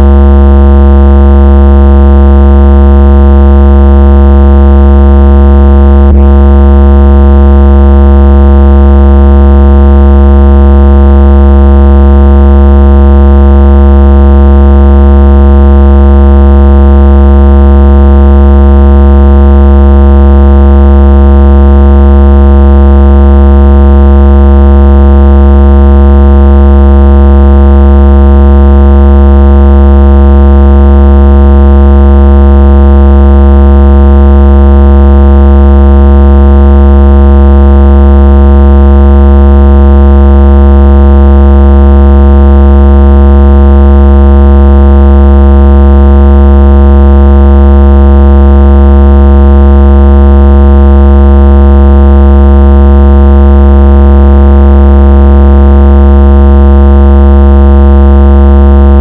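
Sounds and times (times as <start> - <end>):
deep electronic bass buzz: 0.0 - 0.2, 2.8 - 9.5, 12.7 - 16.4, 17.0 - 20.7.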